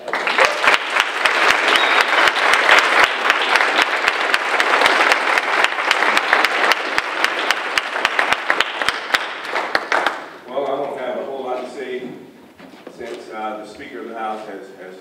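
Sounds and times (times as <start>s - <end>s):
audience applauding: 0.0s - 10.4s
sharp close claps: 0.0s - 10.4s.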